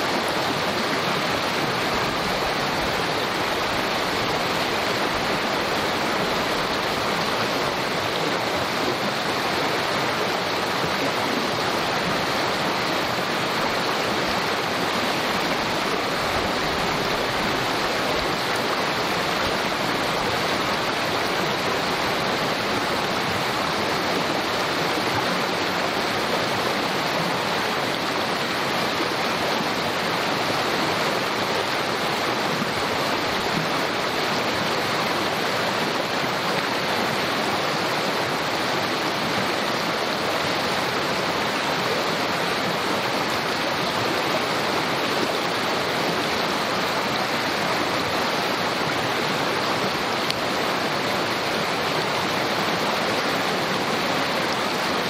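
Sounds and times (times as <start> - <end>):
creek babbling: 0.0 - 55.0.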